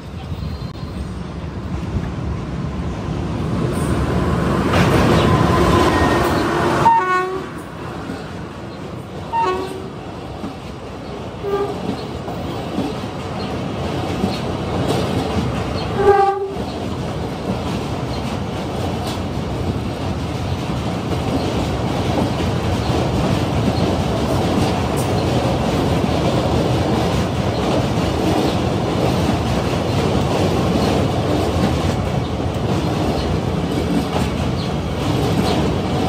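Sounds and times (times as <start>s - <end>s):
clickety-clack of wheels on rails: 0.0s - 36.0s
train rumbling past: 0.0s - 36.0s
train horn: 5.2s - 7.6s, 9.3s - 9.9s, 11.4s - 11.9s, 15.9s - 16.6s.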